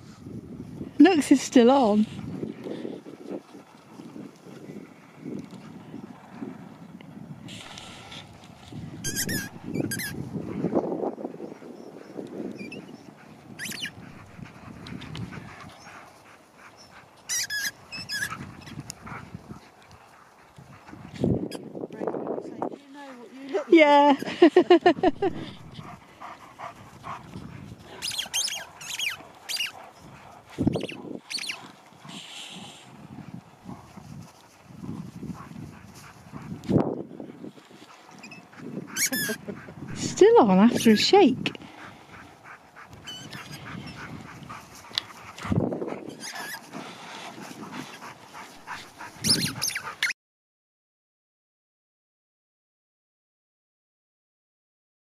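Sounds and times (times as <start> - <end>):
dog vocal sounds: 11.4 - 21.6, 23.0 - 33.9, 37.4 - 50.2
high falling squeaks: 13.6 - 13.9, 49.2 - 50.2.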